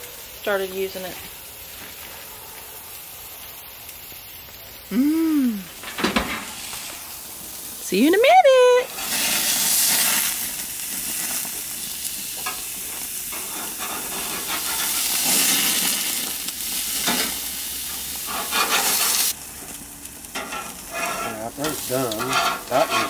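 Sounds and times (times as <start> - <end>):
patties sizzling on grill: 0.0 - 23.0
metal spatula flipping: 17.0 - 17.5, 20.3 - 23.0.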